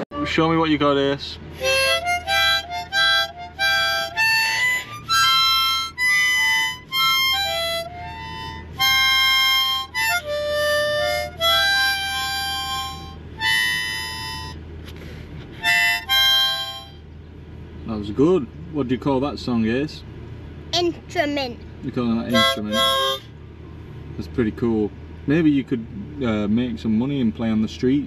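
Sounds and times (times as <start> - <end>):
child playing harmonica: 0.0 - 0.6, 1.5 - 17.0, 22.2 - 23.3.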